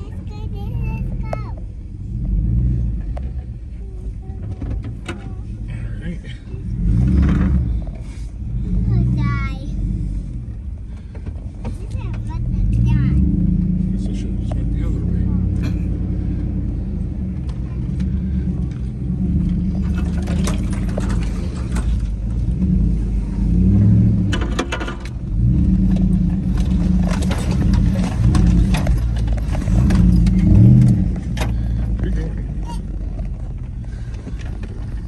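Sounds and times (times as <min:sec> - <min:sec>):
car engine from inside cabin: 0:00.0 - 0:35.0.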